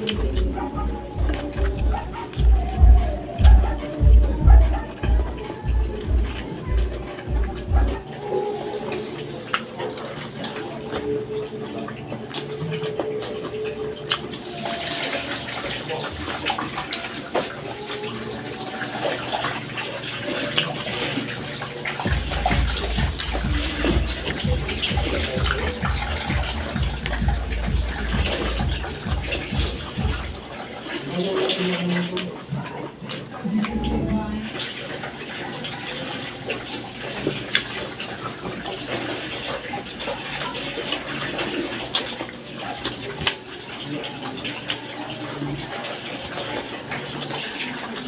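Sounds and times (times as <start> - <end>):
low rhythmic thuds: 0.0 - 9.6, 21.9 - 30.7, 33.4 - 34.6
wet chewing and lip-smacking: 0.0 - 31.0.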